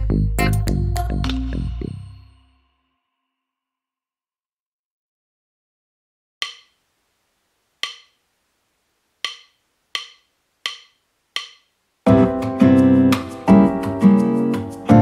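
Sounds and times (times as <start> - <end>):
background music with guitar: 12.1 - 15.0.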